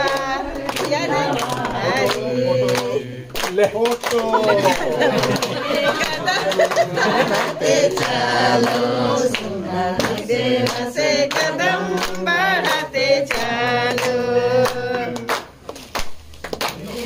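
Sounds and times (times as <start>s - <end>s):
group singing in unison: 0.0s - 15.6s
hand claps: 0.0s - 17.0s.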